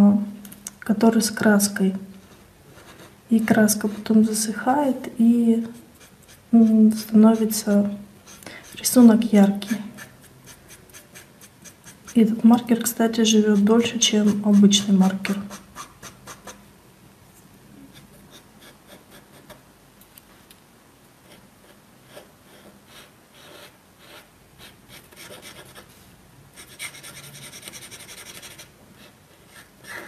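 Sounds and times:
marker rubbing on paper: 5.6 - 12.5, 13.2 - 16.6, 21.3 - 25.9, 26.6 - 30.0.

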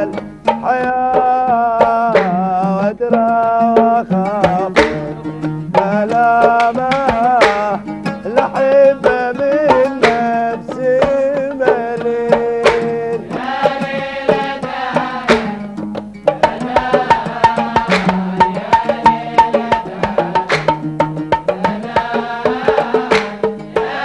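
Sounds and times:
man singing: 0.0 - 14.4
drum beats: 0.0 - 24.0
oud: 0.0 - 24.0.

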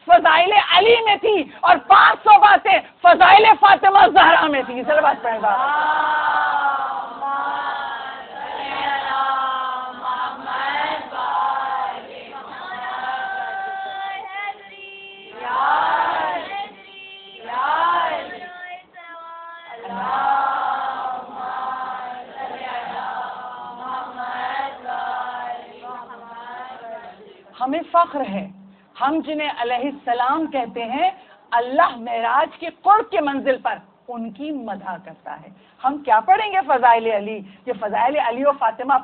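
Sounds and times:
women chanting in unison: 3.2 - 27.6.

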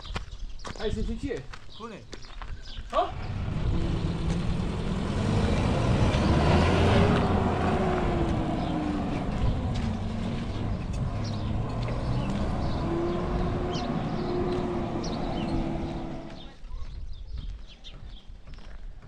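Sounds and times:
vehicle engine passing: 3.1 - 16.6.

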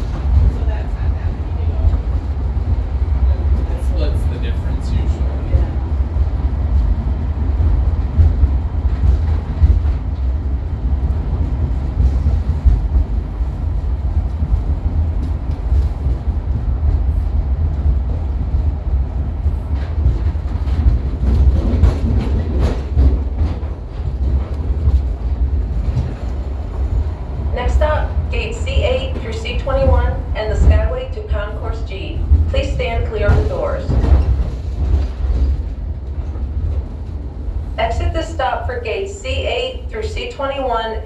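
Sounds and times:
tram low rumble: 0.0 - 41.0.

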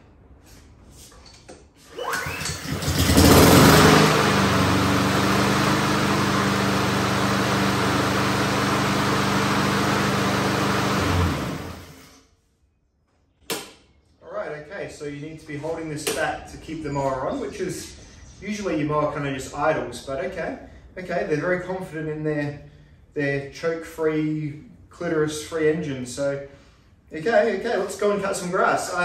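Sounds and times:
lawnmower engine running: 1.9 - 12.1.

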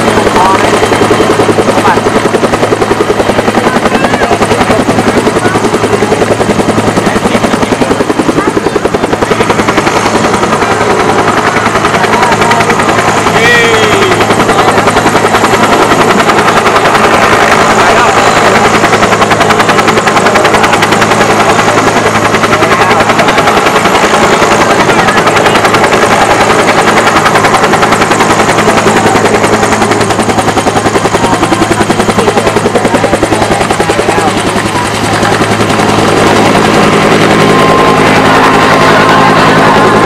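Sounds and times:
helicopter rotor blade beat: 0.0 - 40.0
turbine hum: 0.0 - 40.0.

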